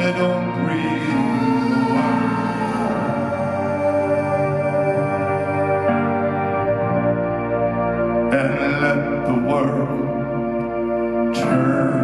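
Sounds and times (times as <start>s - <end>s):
ambient synth pad: 0.0s - 12.0s
low bass tone: 0.0s - 12.0s
wordless backing vocals chord: 0.0s - 12.0s.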